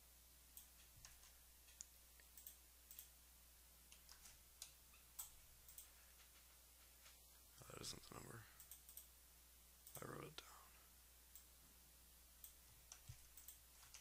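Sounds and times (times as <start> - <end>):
low steady hum: 0.0 - 14.0
keyboard and mouse clicks: 0.6 - 3.1, 3.9 - 6.5, 8.6 - 9.1, 12.4 - 14.0.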